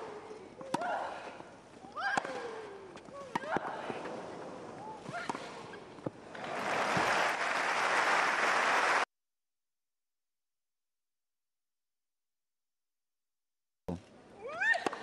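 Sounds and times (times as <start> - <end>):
tennis balls struck with rackets: 0.0 - 4.2, 5.0 - 6.4
crowd applause: 6.3 - 9.1.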